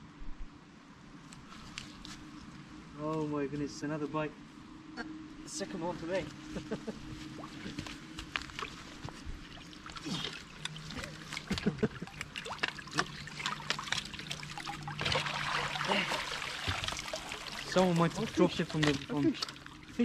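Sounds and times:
water drips: 7.4s - 20.0s
water pouring off bicycle: 9.5s - 20.0s.

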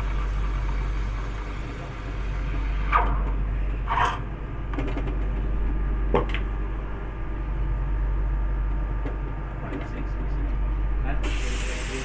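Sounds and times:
steam wand hissing in milk: 11.2s - 12.0s.

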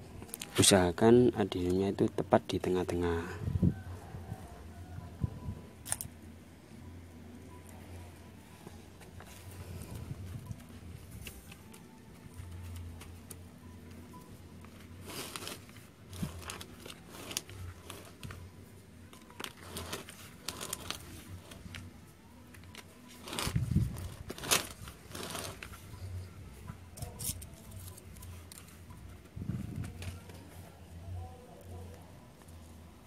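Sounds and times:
hands rustling potting media: 8.4s - 31.1s
crackles: 14.5s - 26.4s.

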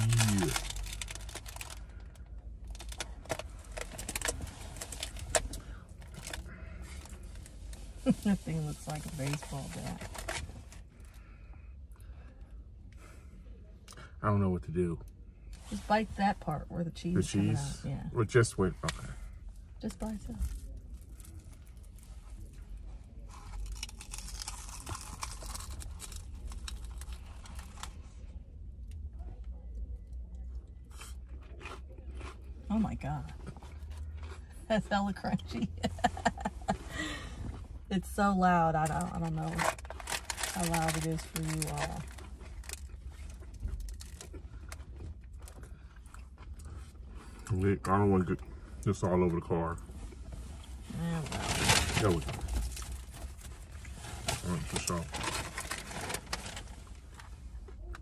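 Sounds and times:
food packaging rustling: 0.0s - 1.8s, 39.5s - 44.2s, 51.3s - 57.0s
crunching crisp batter: 0.0s - 8.2s, 20.7s - 28.0s
low steady rumble: 0.0s - 58.0s.

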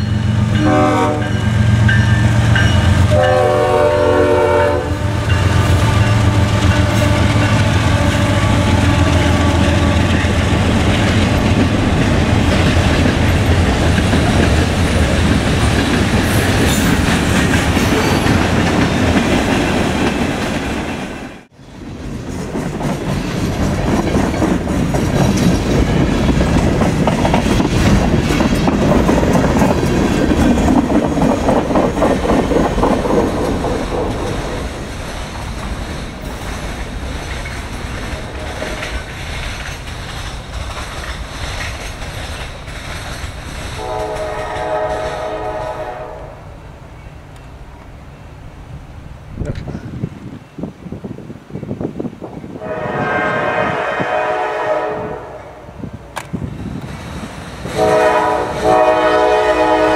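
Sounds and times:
locomotive horn: 0.4s - 1.6s, 2.8s - 10.4s, 43.8s - 46.5s, 52.6s - 55.7s, 57.7s - 59.9s.

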